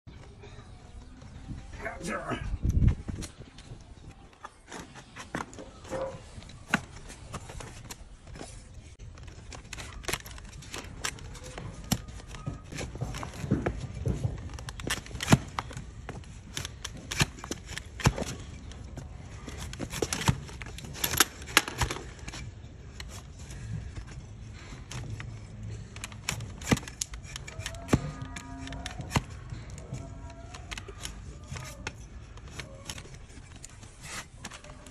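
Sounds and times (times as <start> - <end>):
blade scraping hoof horn: 27.3 - 30.2.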